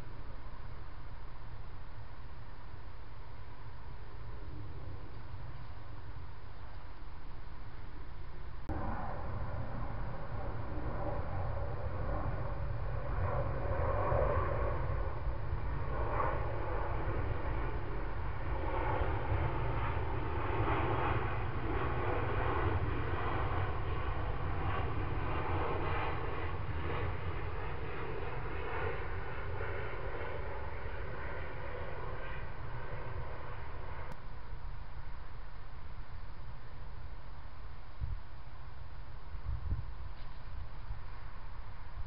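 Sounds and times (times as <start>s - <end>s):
steady low rumble: 0.0s - 42.0s
distant engine passing: 8.7s - 34.2s.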